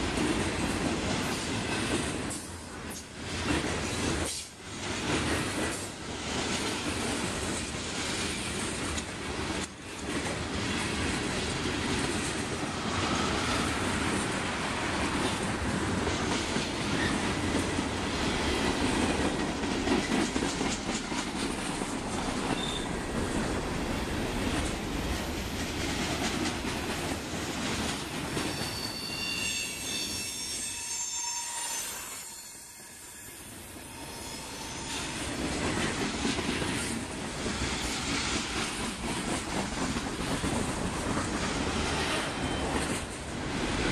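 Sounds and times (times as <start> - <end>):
freight train wheels rumbling: 0.0 - 30.7, 33.7 - 43.9
wheels clacking over rail joints: 15.1 - 28.7
high wheel squeal: 28.5 - 35.2.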